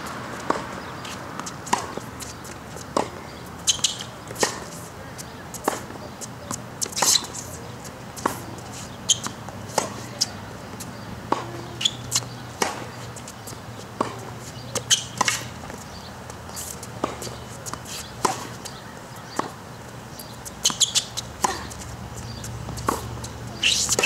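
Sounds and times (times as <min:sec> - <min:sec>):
tennis ball struck by rackets: 0:00.0 - 0:04.8, 0:05.6 - 0:07.5, 0:08.2 - 0:24.0
ball bouncing on court: 0:09.1 - 0:15.8, 0:16.8 - 0:19.6.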